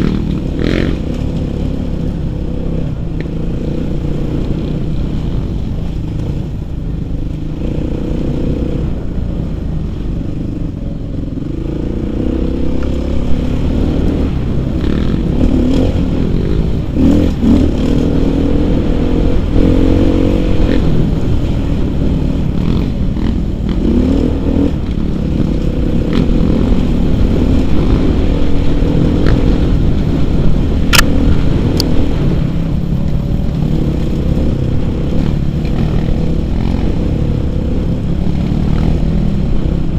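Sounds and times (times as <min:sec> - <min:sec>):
dirt bike engine revving: 0:00.0 - 0:05.9, 0:11.4 - 0:32.4.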